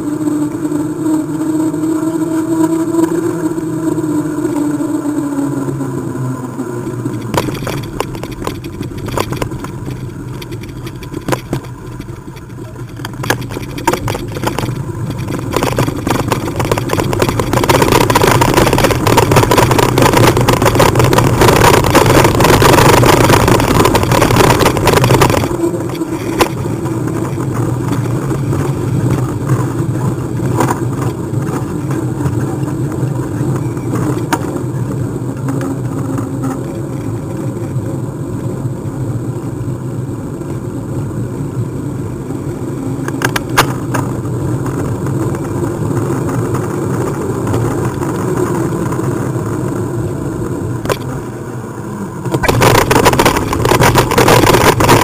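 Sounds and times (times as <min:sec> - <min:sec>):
bike rattling over cobblestones: 0:00.0 - 0:55.0
bike tyres droning on tarmac: 0:00.0 - 0:55.0.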